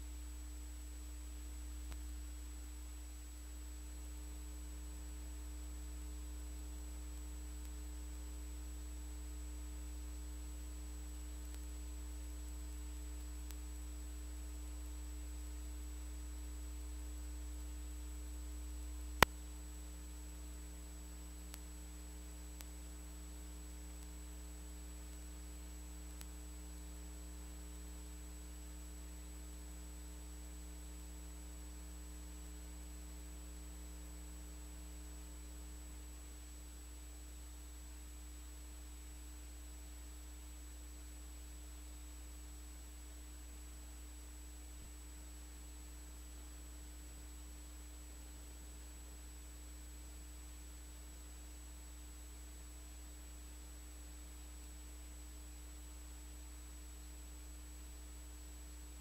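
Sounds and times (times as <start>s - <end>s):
low electrical hum with hiss: 0.0s - 59.0s.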